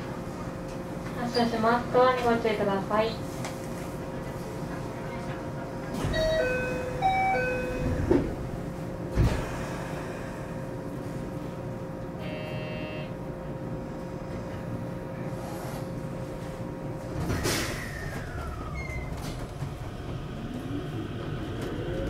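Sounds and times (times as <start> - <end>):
train doors shutting: 4.4 - 10.4, 16.4 - 22.0
two-note door chime: 6.1 - 8.0
steady electrical hum: 6.5 - 17.3
short buzzer: 12.2 - 13.2.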